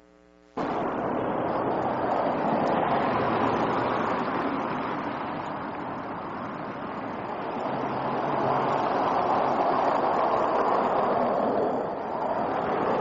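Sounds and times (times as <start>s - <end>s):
faint electrical hum: 0.0s - 0.6s
rushing outdoor background noise: 0.6s - 13.0s.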